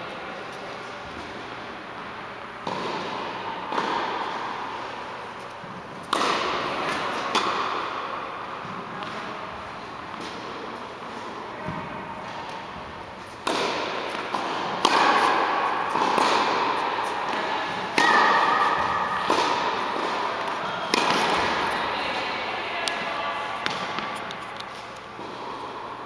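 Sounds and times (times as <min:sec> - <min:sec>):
echo in hall: 0:02.5 - 0:26.0
tennis balls struck and bouncing: 0:02.6 - 0:05.0, 0:05.7 - 0:10.7, 0:11.6 - 0:22.1, 0:22.8 - 0:25.5.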